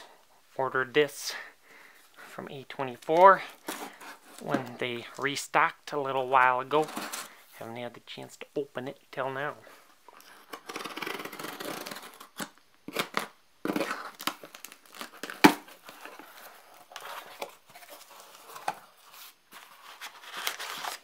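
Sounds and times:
packing tape tearing and peeling: 0:10.2 - 0:16.2, 0:19.8 - 0:21.0
plastic crinkling and rustling: 0:12.1 - 0:21.0.

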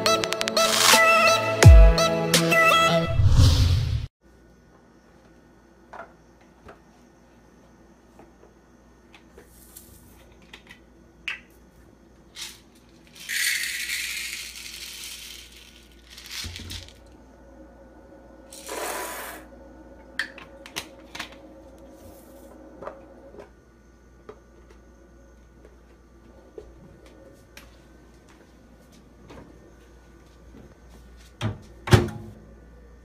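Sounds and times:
popcorn kernels rattling: 0:12.3 - 0:17.0.

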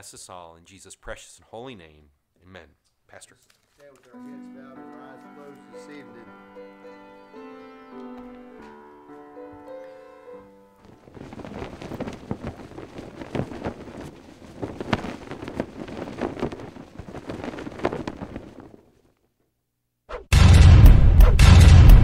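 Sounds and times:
cloth flag flapping: 0:09.5 - 0:19.3
wind blowing: 0:10.8 - 0:19.1
loud music with heavy boom: 0:20.3 - 0:22.0.

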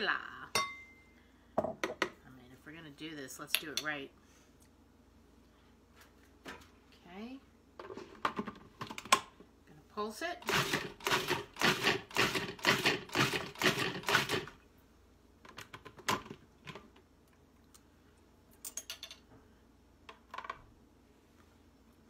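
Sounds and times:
food processor pulsing: 0:10.4 - 0:14.5.

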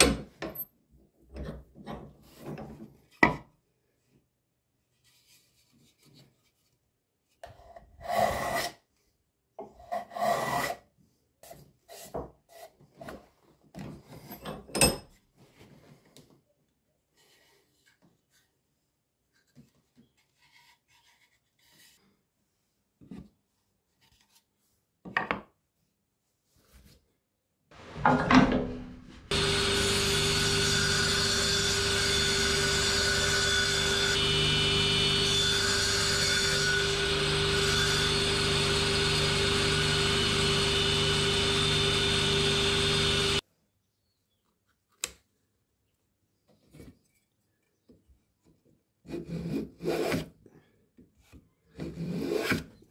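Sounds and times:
power tool humming: 0:29.2 - 0:43.4.

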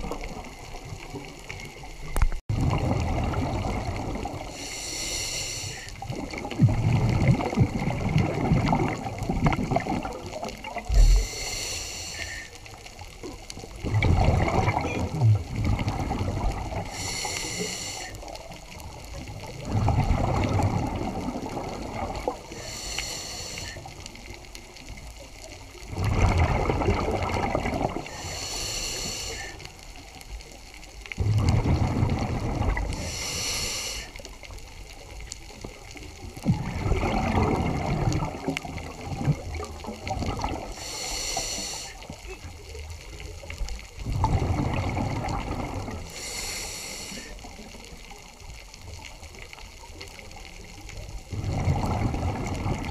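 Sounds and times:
exhaled bubbles gurgling underwater: 0:00.0 - 0:52.9
regulator hiss on inhale: 0:04.5 - 0:06.0, 0:10.9 - 0:12.8, 0:16.8 - 0:18.5, 0:22.5 - 0:24.0, 0:28.0 - 0:29.8, 0:32.9 - 0:34.4, 0:40.7 - 0:42.2, 0:46.0 - 0:47.5.

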